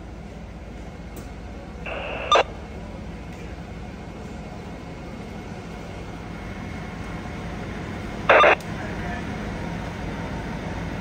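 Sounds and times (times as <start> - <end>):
low rumble of street noise: 0.0 - 11.0
radio static burst: 1.9 - 2.4, 8.3 - 8.6.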